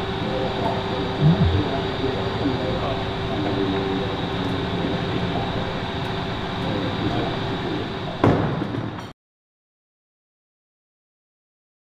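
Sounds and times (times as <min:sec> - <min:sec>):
faint voices: 0:00.0 - 0:08.2.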